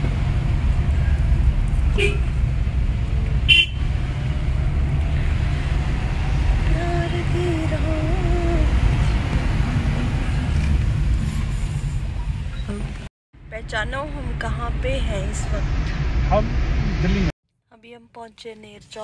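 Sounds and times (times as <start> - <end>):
car engine and road noise: 0.0 - 17.3
vehicle horn: 1.9 - 2.3, 3.5 - 3.9.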